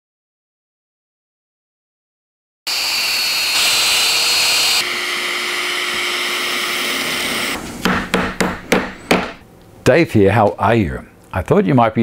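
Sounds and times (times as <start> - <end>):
power tool motor whining: 2.7 - 9.2
hammer strike on wood: 7.8 - 9.4.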